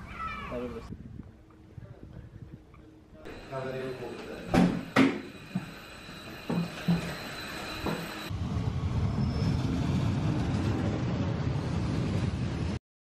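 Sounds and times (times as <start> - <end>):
steady hum: 3.0 - 8.3
footsteps: 3.3 - 8.3
diesel railcar rumbling: 3.3 - 12.8.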